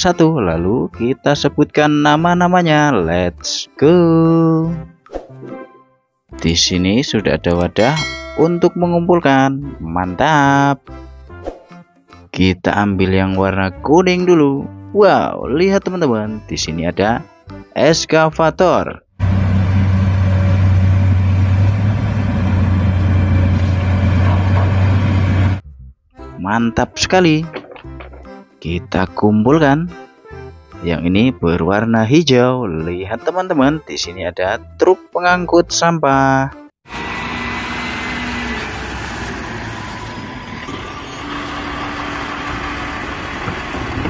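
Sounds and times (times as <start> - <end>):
excavator engine idling: 19.2 - 25.6, 41.3 - 44.0.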